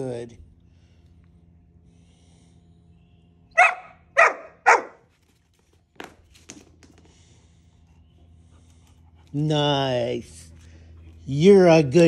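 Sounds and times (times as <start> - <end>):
puppy barking: 3.6 - 5.0.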